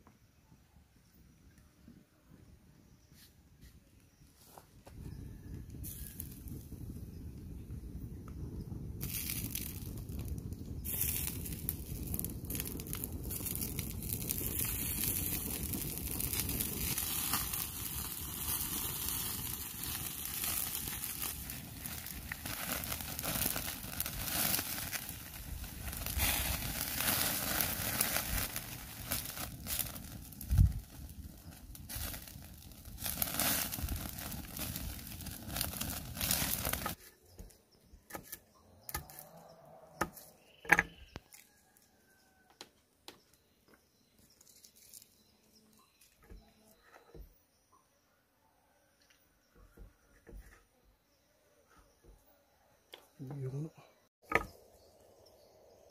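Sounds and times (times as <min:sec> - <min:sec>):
fire crackling: 0:04.9 - 0:37.5, 0:44.3 - 0:46.2
octopus sizzling on hot stone: 0:05.8 - 0:06.7, 0:08.9 - 0:37.0.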